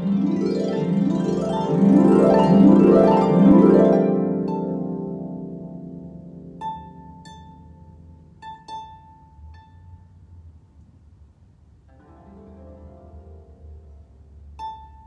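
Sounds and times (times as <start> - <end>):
harp playing: 0.0 - 10.6, 11.9 - 15.0.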